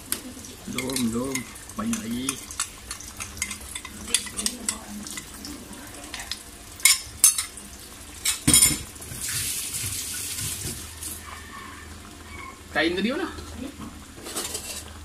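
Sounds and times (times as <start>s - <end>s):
metal spoon clinking in bowl: 0.7s - 5.3s, 6.8s - 7.5s.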